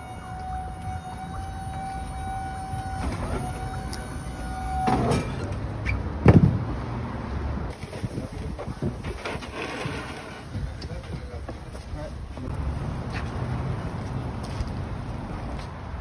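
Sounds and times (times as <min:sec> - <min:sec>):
liftgate electric motor whine: 0:00.0 - 0:05.8
loud thump: 0:06.2 - 0:06.7.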